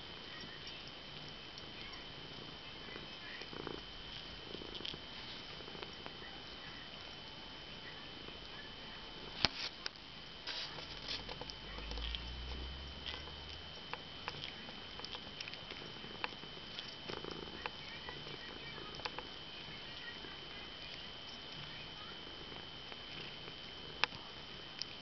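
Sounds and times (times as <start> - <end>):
cat purring: 0.0 - 25.0
cat sucking with wet clicks: 10.7 - 21.7.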